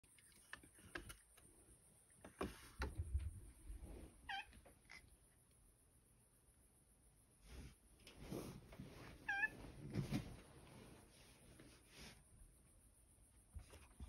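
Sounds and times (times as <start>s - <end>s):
cat meowing: 4.2s - 5.0s, 9.2s - 9.6s.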